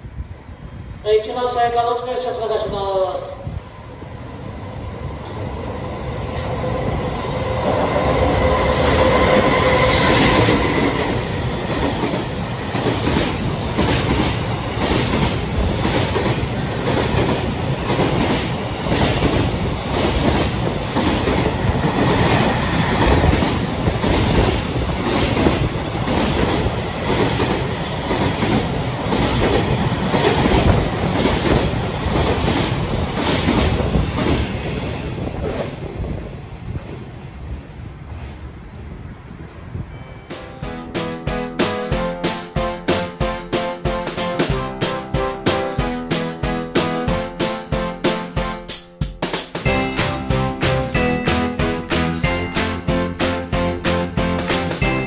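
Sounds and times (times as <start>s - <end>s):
train rumble: 2.2s - 55.0s
locomotive passing: 3.8s - 33.1s.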